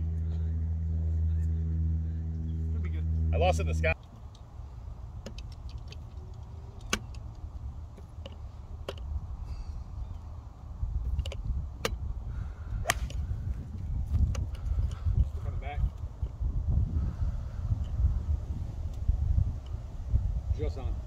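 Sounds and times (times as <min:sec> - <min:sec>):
wind on microphone: 0:06.2 - 0:21.0.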